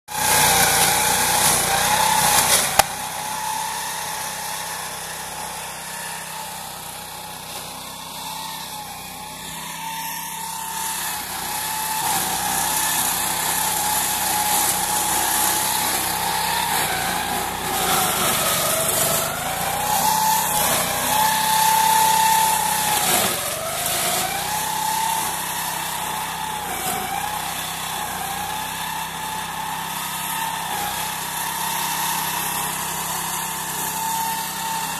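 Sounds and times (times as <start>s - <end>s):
rotor shredding brush: 0.1s - 34.9s.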